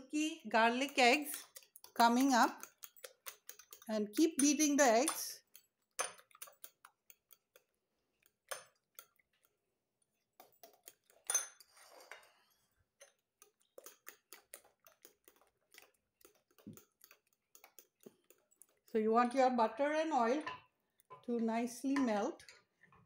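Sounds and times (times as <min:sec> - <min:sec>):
utensil tapping ceramic bowl: 0:00.8 - 0:09.2, 0:13.0 - 0:19.0.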